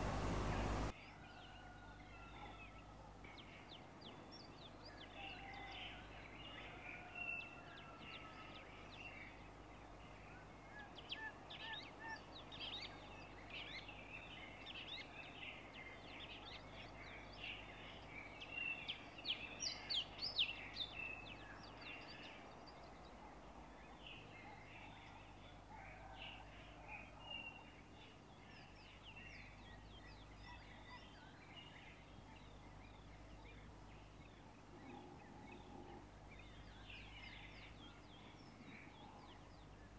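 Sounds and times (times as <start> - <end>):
low steady hum: 0.0 - 1.0
small birds chirping: 0.0 - 39.9.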